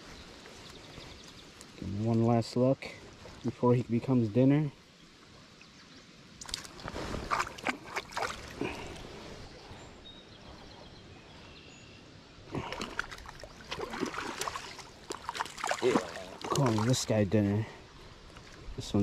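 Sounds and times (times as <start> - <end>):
stream rushing: 6.2 - 9.6, 12.6 - 17.5
water splashing: 6.4 - 9.2, 12.5 - 17.2.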